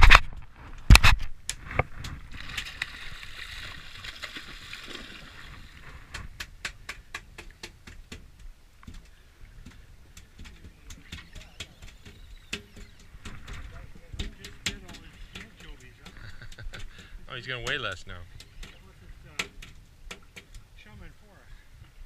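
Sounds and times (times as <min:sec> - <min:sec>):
water sloshing against boat: 0:07.3 - 0:21.2.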